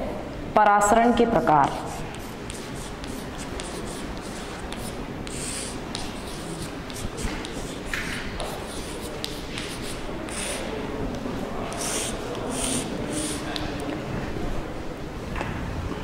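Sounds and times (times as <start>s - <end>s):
chalk writing on blackboard: 1.6s - 13.8s.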